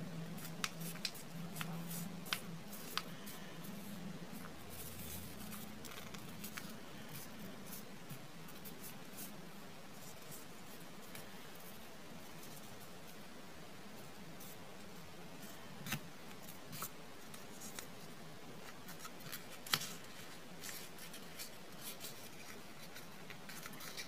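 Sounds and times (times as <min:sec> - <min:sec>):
paper folding and crinkling: 0:00.3 - 0:09.3, 0:15.4 - 0:24.0.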